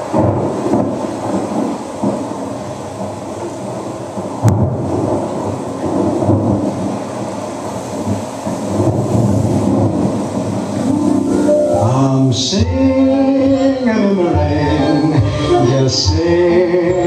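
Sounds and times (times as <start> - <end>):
thunder rumbles and crack: 0.0 - 11.4
rain hiss: 0.0 - 17.0.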